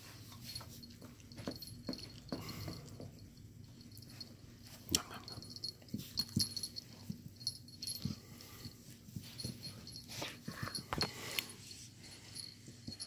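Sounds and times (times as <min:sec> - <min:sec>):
dogs scuffling and knocking: 0:00.0 - 0:08.2
dogs breathing noises: 0:00.0 - 0:13.0.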